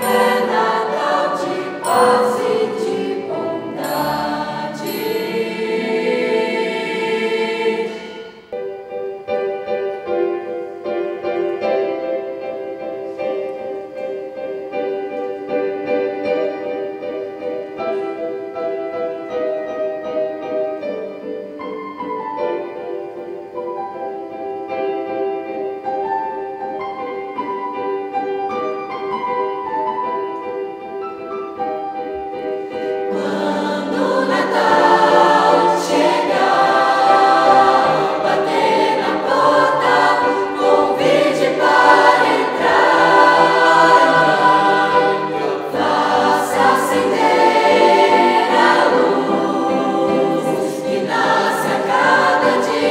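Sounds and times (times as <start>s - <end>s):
youth choir singing: 0.0s - 8.6s, 32.8s - 52.9s
keyboard chords: 0.0s - 52.9s.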